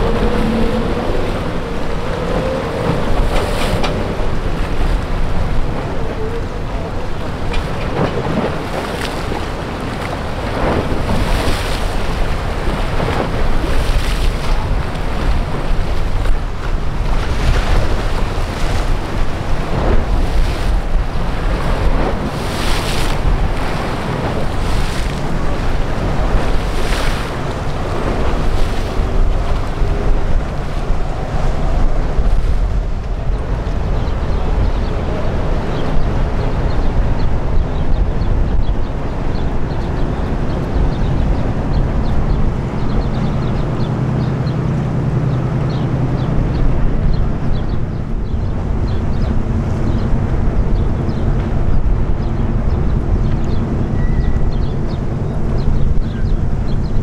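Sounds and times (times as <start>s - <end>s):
steady low rumble: 0.0s - 57.0s
swishes of wind or water: 0.0s - 57.0s
wind buffeting microphone: 0.0s - 57.0s.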